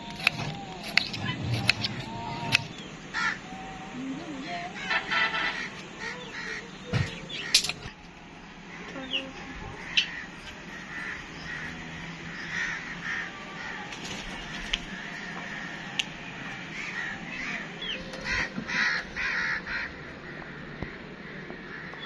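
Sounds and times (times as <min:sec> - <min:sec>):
crows cawing: 0:02.5 - 0:03.8, 0:04.7 - 0:07.7, 0:09.8 - 0:22.0.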